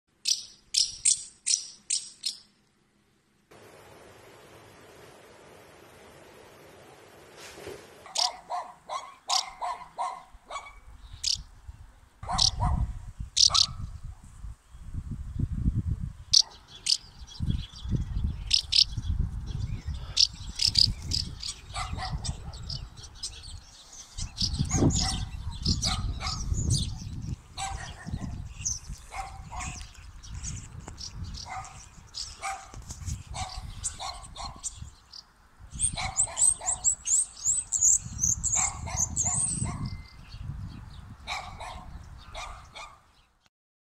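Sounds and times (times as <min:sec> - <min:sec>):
house martins twittering: 0:00.2 - 0:02.5, 0:08.0 - 0:11.5, 0:12.2 - 0:13.9, 0:16.3 - 0:43.0
dog barking: 0:08.0 - 0:10.8, 0:12.2 - 0:12.9, 0:13.5 - 0:13.8, 0:21.7 - 0:22.8, 0:24.7 - 0:26.6, 0:27.6 - 0:28.4, 0:29.1 - 0:29.8, 0:31.4 - 0:31.8, 0:32.4 - 0:34.7, 0:35.9 - 0:37.0, 0:38.5 - 0:39.9, 0:41.3 - 0:43.1
wind rumbling on microphone: 0:09.4 - 0:43.0.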